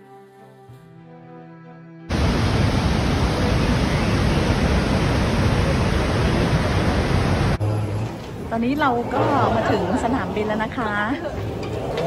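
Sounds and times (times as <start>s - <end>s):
waterfall roaring: 2.1s - 7.6s.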